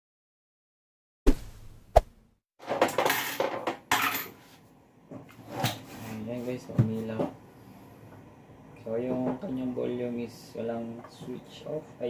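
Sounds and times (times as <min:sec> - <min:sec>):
sharp knock: 0:01.3 - 0:02.1.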